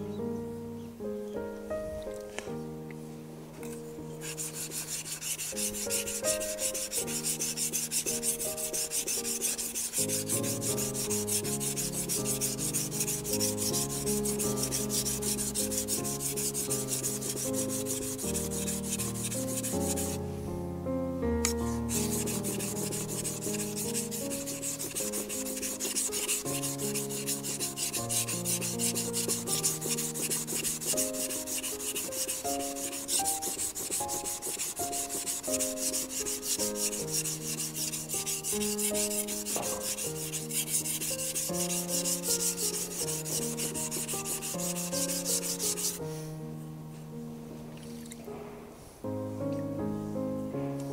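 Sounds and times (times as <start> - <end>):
soft melodic background music: 0.0 - 50.9
knife scraping on whetstone: 4.2 - 20.2, 21.4 - 46.0.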